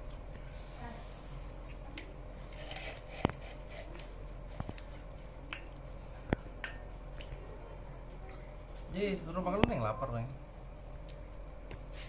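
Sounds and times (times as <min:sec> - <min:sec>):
soft squishing of meat: 0:03.5 - 0:09.9, 0:10.6 - 0:12.0.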